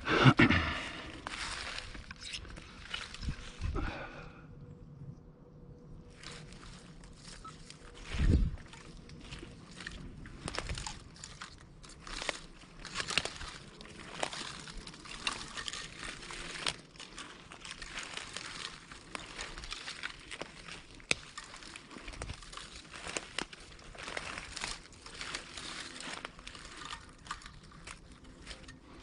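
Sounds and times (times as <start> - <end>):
twigs snapping: 0.6 - 4.0, 6.1 - 29.0
footsteps on dry leaves: 0.6 - 4.2, 6.1 - 29.0.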